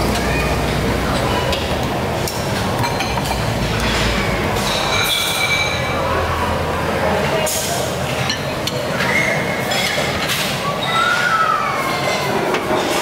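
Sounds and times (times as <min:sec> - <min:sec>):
traffic: 0:00.0 - 0:10.6
background chatter: 0:00.0 - 0:13.0
dishes and utensils clinking: 0:01.2 - 0:06.0, 0:07.4 - 0:10.6.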